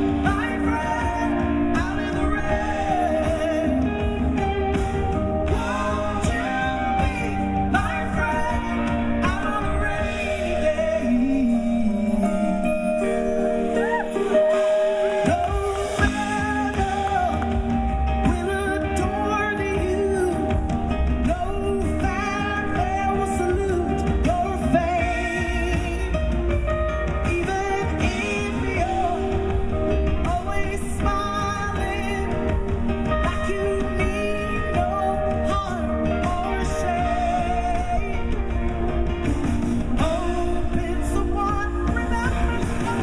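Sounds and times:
bass: 0.0s - 43.0s
electric guitar: 0.0s - 43.0s
woman singing: 0.0s - 43.0s
percussion: 13.8s - 43.0s.

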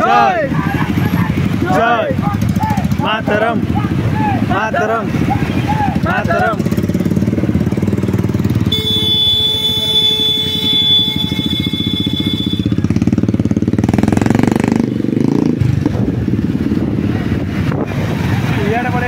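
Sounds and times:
motorcycle engines running: 0.0s - 19.0s.

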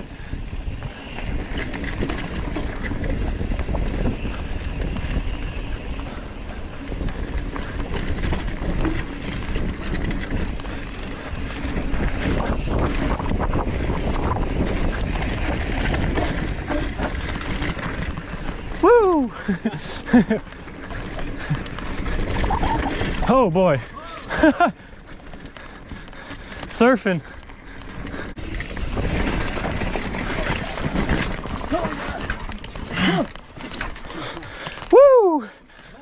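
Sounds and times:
wind rushing over microphone: 0.0s - 20.1s, 27.4s - 33.0s
tyres rolling on dirt and rock: 0.0s - 36.0s
bike knocks and rattles: 0.6s - 35.0s.

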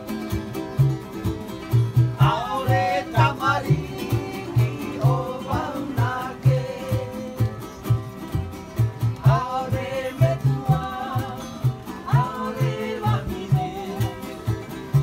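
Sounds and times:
strummed acoustic guitar: 0.0s - 15.0s
ukulele: 0.0s - 15.0s
people singing together: 2.2s - 8.1s, 9.1s - 15.0s.

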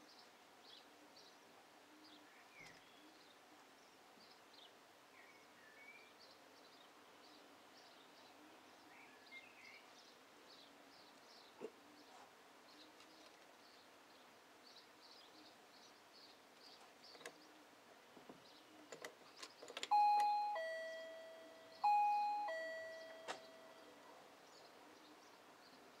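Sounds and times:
two-tone doorbell chime: 19.9s - 24.0s.

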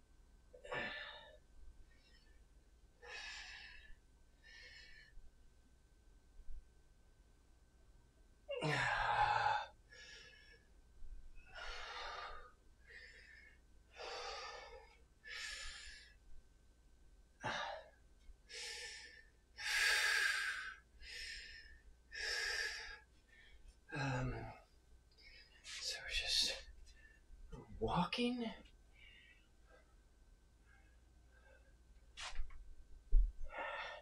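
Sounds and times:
man sighing: 8.5s - 9.6s, 23.9s - 24.6s
man breathing hard: 11.5s - 16.2s, 17.4s - 24.5s, 33.5s - 34.0s.

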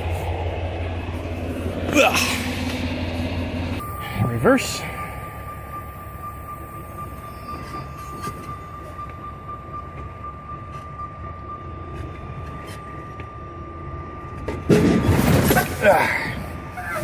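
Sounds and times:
diesel truck engine running: 0.0s - 17.0s
high thin tone: 3.8s - 13.4s.

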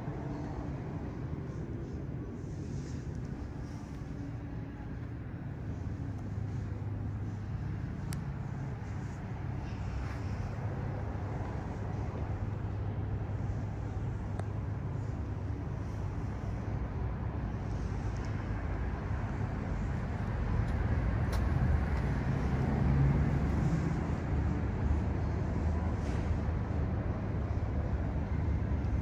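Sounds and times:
vehicle engine running: 0.0s - 29.0s.

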